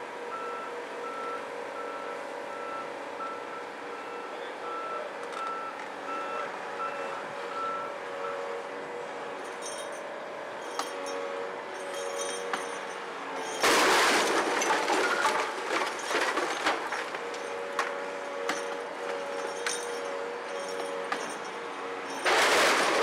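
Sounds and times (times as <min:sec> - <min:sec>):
diesel engine running: 0:00.0 - 0:23.0
travel alarm beeping: 0:00.3 - 0:08.4.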